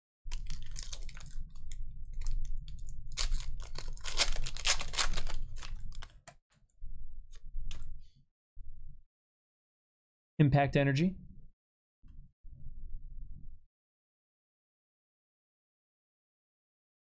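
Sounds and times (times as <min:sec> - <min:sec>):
cards rustling: 0:00.3 - 0:01.4, 0:03.2 - 0:06.3
foil wrapper crinkling: 0:00.3 - 0:06.3.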